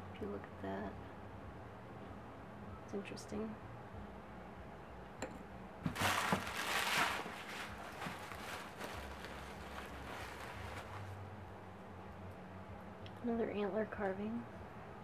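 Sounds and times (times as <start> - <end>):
packing paper rustling: 5.8 - 11.2.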